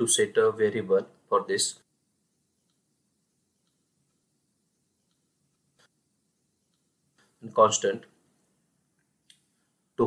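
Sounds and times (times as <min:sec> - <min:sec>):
very faint clicks: 0:02.6 - 0:02.9, 0:03.6 - 0:04.3, 0:06.7 - 0:07.4, 0:08.4 - 0:09.6.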